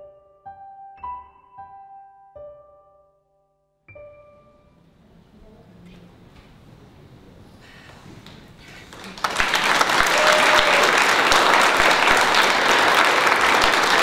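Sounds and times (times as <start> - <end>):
audience applause: 8.2 - 14.0.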